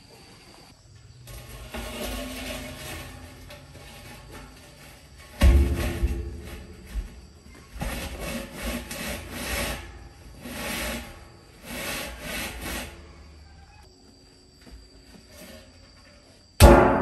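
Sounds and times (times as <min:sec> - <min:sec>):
scraping rubbing strokes: 0:01.3 - 0:13.9.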